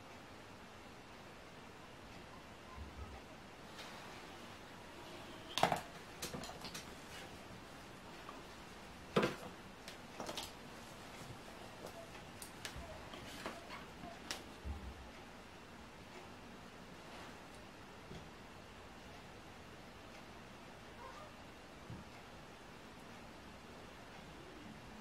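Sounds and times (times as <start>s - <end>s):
makeup tools clicking and knocking: 5.6s - 6.9s.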